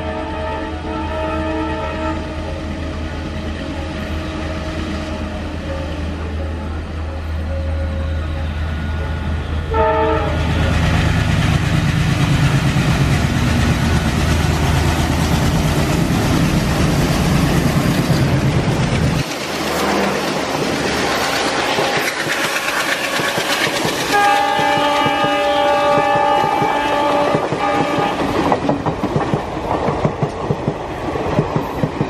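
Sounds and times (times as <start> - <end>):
train horn blast: 0.0 - 2.6, 7.2 - 10.9, 24.0 - 28.5
diesel locomotive engine drone: 0.0 - 32.0
coaches rushing over rails: 2.1 - 32.0.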